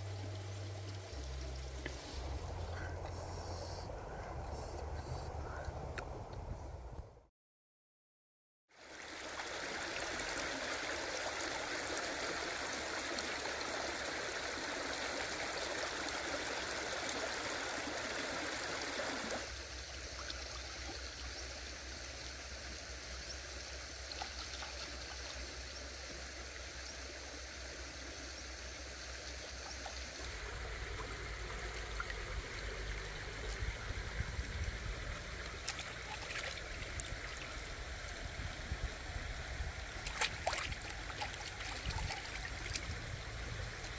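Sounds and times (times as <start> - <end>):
stream running over stones: 0.0 - 2.8, 8.7 - 43.9.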